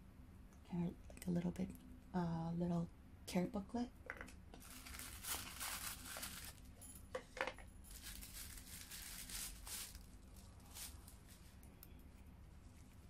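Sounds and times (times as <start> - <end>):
paper wrapping rustling: 4.6 - 6.8, 7.9 - 11.7.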